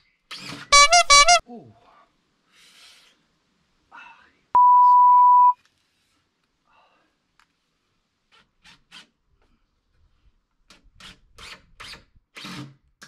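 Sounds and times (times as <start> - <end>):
censor bleep: 4.6 - 5.6.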